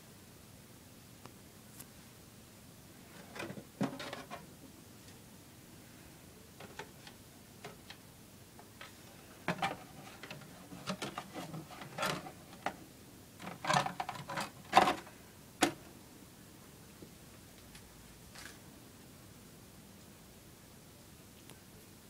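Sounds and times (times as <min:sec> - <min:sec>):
handling clicks and knocks: 0:08.8 - 0:12.8.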